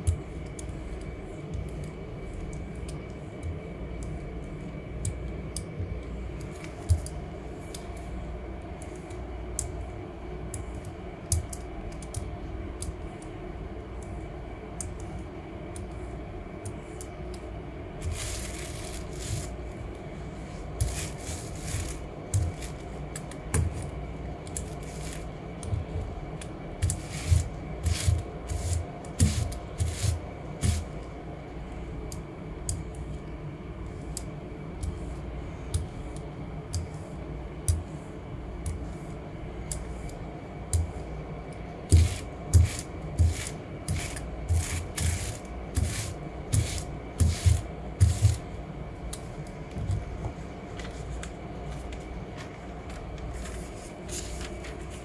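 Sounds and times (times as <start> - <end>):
steady low hum: 0.0 - 55.0
ink roller rolling: 20.3 - 23.0
rustling scraping sweeps: 53.3 - 55.0.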